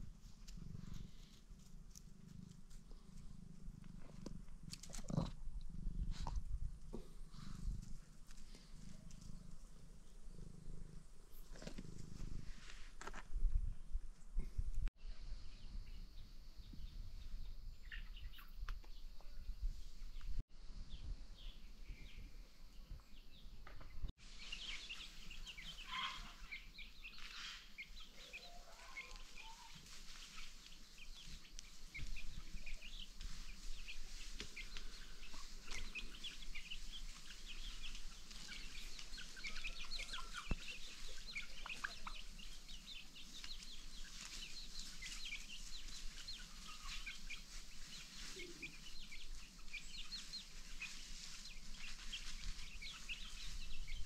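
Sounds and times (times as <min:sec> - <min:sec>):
chickens clucking: 0:24.6 - 0:54.0.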